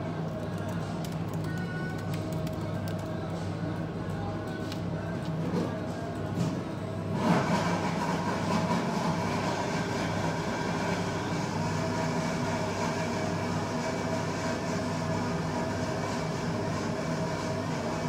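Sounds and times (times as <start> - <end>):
laptop keyboard typing: 0.4 - 3.1.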